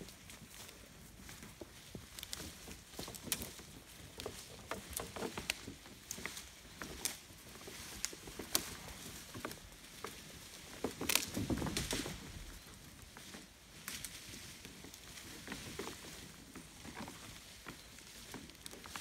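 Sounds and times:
rustling leaves: 0.0 - 19.0
twigs snapping: 10.8 - 12.2.

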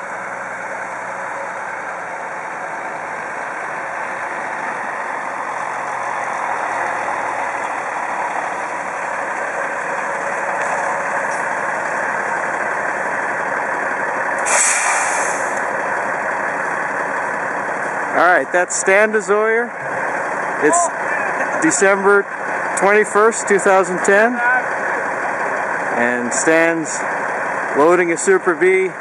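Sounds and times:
diesel truck engine running: 0.0 - 29.0
air brakes hissing: 14.4 - 15.7.

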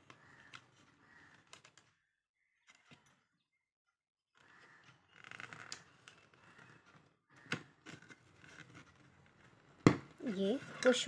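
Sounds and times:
plastic scraping and rubbing: 4.4 - 11.0.

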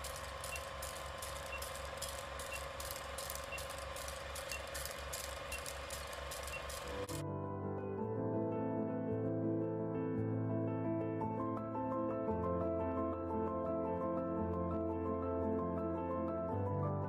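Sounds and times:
rapid ticking: 0.0 - 7.2
short high beeps: 0.4 - 7.0
soft music: 6.9 - 17.0.

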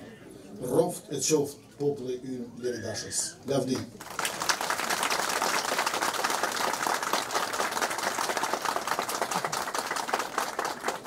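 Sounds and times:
crowd applauding: 4.0 - 11.0.

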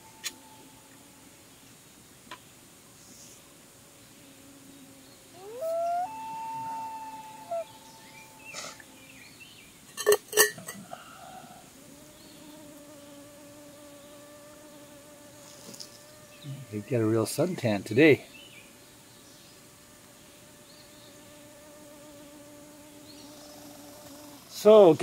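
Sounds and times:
fly buzzing: 0.0 - 1.6, 2.9 - 25.0
loon wailing: 5.4 - 9.1.

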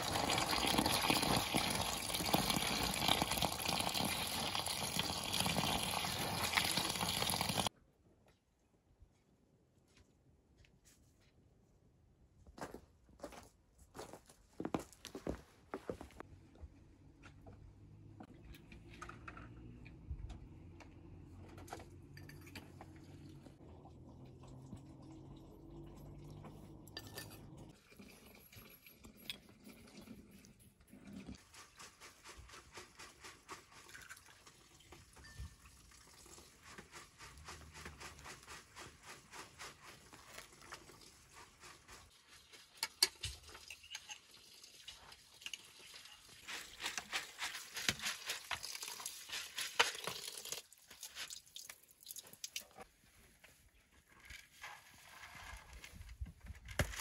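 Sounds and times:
tap water running over grain: 0.0 - 7.7, 23.1 - 27.0, 31.1 - 52.8.

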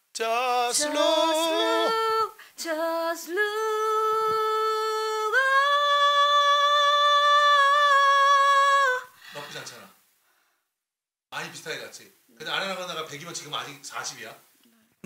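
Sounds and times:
woman singing a cappella: 0.2 - 9.3.

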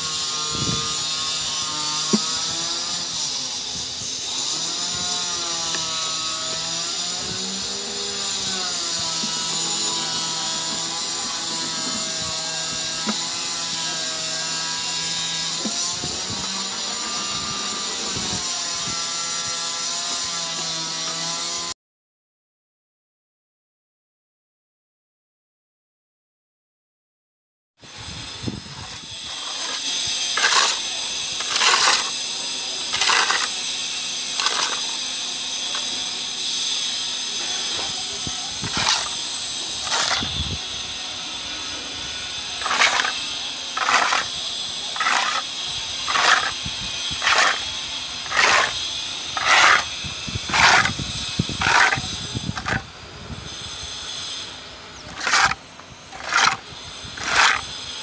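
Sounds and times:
metal float scraping wall: 0.0 - 3.4, 4.3 - 21.5, 28.8 - 36.1, 37.4 - 40.5, 42.4 - 52.9, 55.1 - 58.0.

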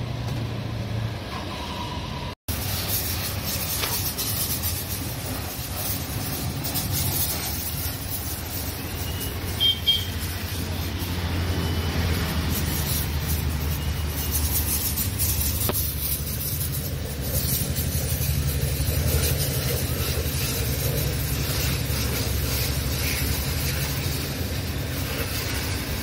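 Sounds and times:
high squeak: 1.3 - 25.0
pressure washer motor hum: 2.5 - 26.0
water spray hissing: 2.5 - 26.0.

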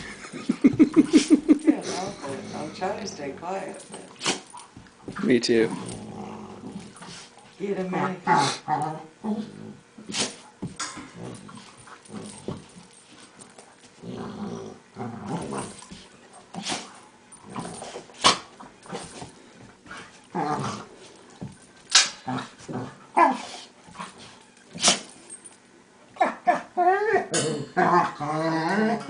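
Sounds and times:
dogs growling and barking: 3.8 - 25.4, 26.2 - 29.0
dog snapping: 21.9 - 22.2.

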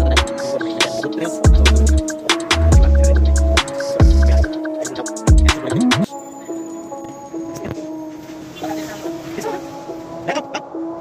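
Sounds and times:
music with deep bass and percussion: 0.0 - 6.1.

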